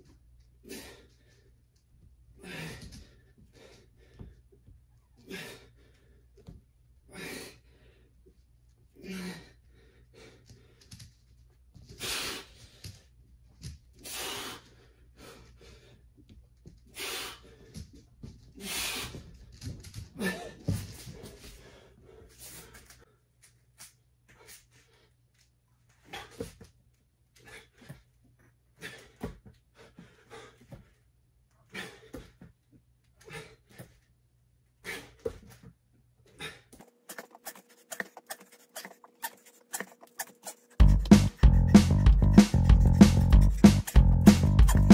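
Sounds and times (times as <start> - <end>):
man breathing heavily: 0.6 - 11.0, 11.8 - 13.1, 13.9 - 19.5, 20.2 - 23.3, 27.3 - 32.6, 34.8 - 44.9.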